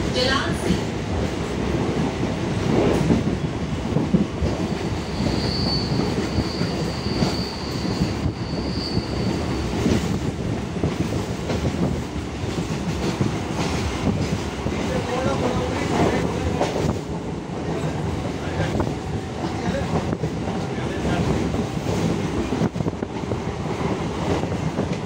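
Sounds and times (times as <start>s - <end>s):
train rumbling on rails: 0.0s - 25.0s
high wheel squeal: 4.9s - 9.6s.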